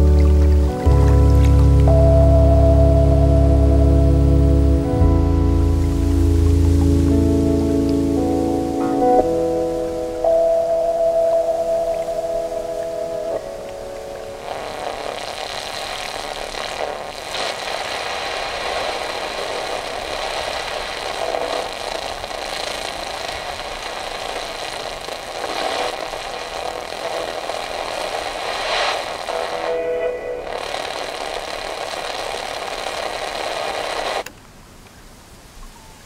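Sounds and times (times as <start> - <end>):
radio static hiss: 0.0 - 34.3
static crackles: 0.0 - 36.0
steady radio tones: 5.8 - 34.3.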